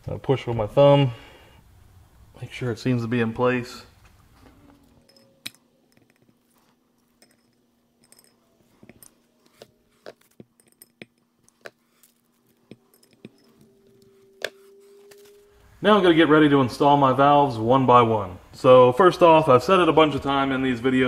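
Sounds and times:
faint low hum: 0.0 - 21.0
small metal parts clinking: 4.8 - 9.3, 10.1 - 15.5.

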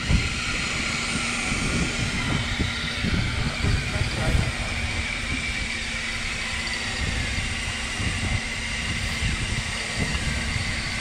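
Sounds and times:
boat engine rumbling: 0.0 - 11.0
constant high whine: 0.0 - 11.0
wind: 0.0 - 11.0.

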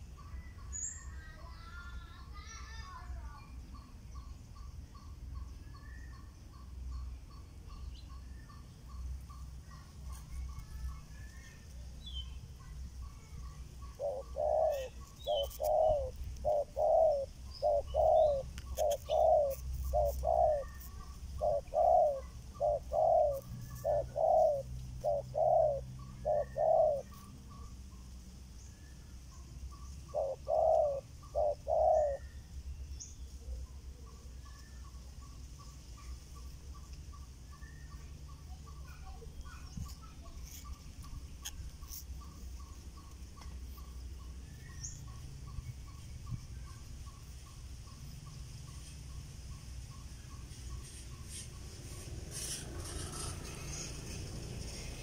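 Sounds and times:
doves cooing: 13.7 - 27.7, 30.0 - 32.5.

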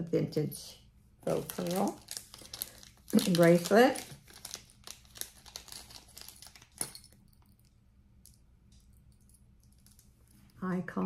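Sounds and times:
plastic bag crinkling: 1.2 - 7.2.

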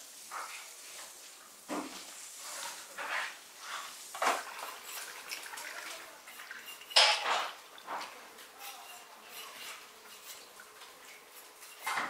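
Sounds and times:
water splashing and dripping: 4.1 - 7.0.

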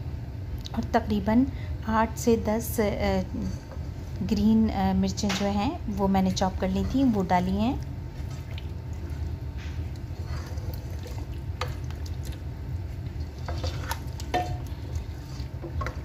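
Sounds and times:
steady low hum: 0.0 - 16.0
spatula stirring thick wet mix: 6.7 - 16.0.

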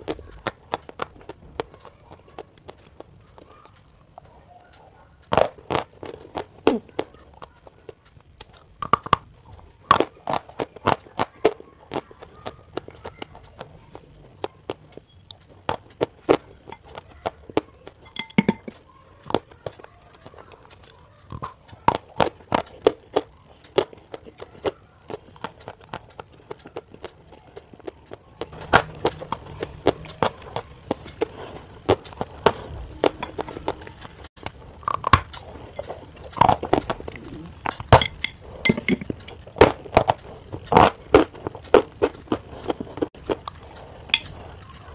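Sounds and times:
chalk crunching and chewing: 0.0 - 44.9.

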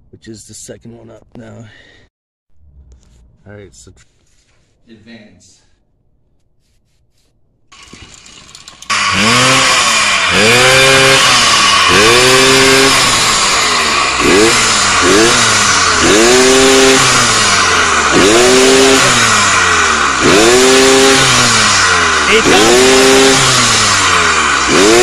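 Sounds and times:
two-stroke engine revving: 7.7 - 25.0.

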